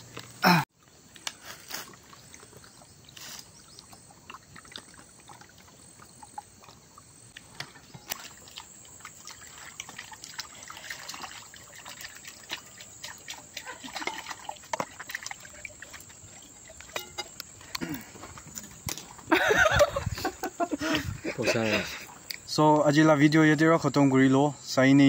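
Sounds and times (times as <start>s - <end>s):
water splashing on steel plate: 7.4s - 17.8s.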